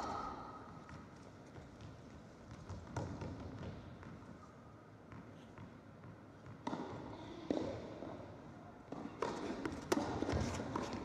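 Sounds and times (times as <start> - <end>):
tennis ball thuds in indoor hall: 0.0 - 11.0.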